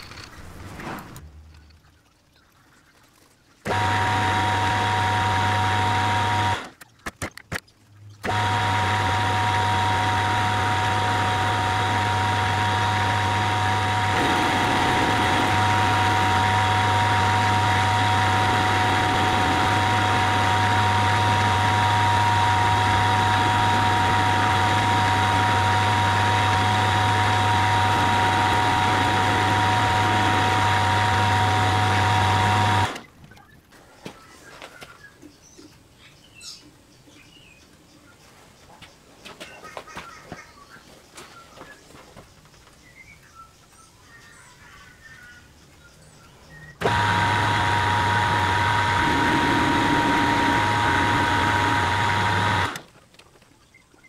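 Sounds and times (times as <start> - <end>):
metal lathe humming: 3.7 - 6.7, 8.2 - 33.1, 46.8 - 52.8.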